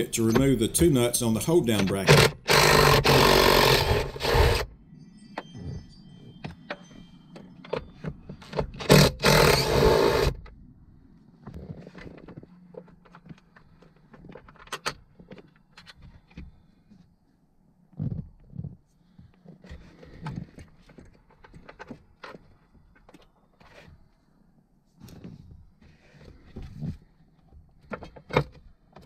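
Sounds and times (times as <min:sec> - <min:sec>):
impact driver running: 0:02.0 - 0:04.7, 0:08.8 - 0:10.4.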